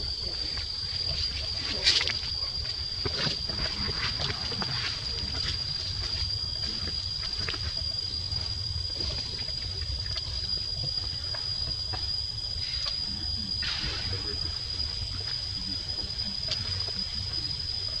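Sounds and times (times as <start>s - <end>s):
high-pitched whine: 10.5s - 18.0s.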